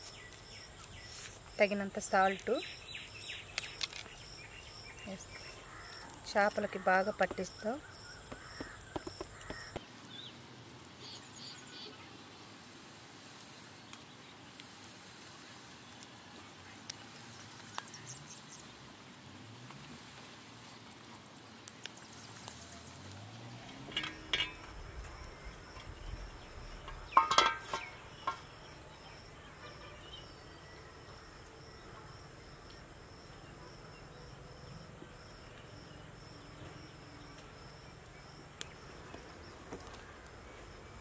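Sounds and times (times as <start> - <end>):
insect chirping: 0.0 - 41.0
knocks: 8.3 - 9.8.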